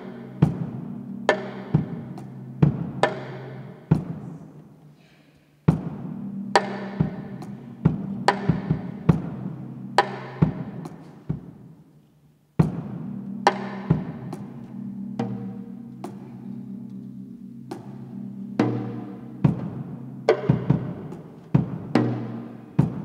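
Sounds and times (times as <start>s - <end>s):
low held tone: 12.7s - 21.4s.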